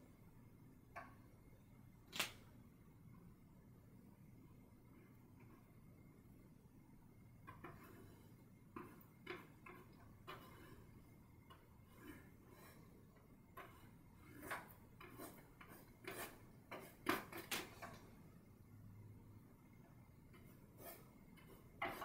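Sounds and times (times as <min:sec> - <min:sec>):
paintbrush scratching on canvas: 0:13.6 - 0:17.5, 0:20.4 - 0:22.0.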